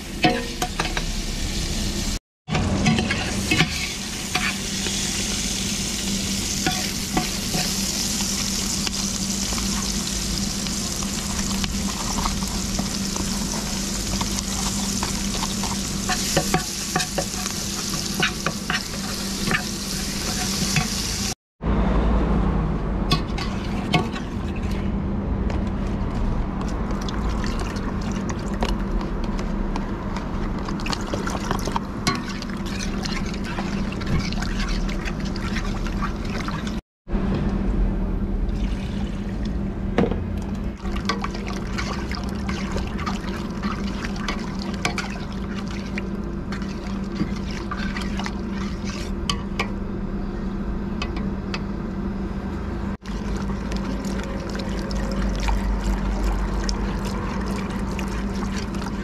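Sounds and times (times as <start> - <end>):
meat sizzling in oil: 3.1 - 21.4.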